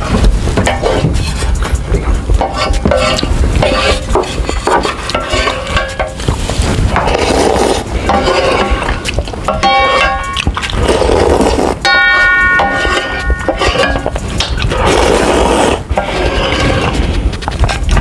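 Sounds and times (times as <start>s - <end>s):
wooden spoon scraping metal pan: 0.6s - 1.8s, 2.4s - 17.1s
noodles being slurped: 10.6s - 11.8s.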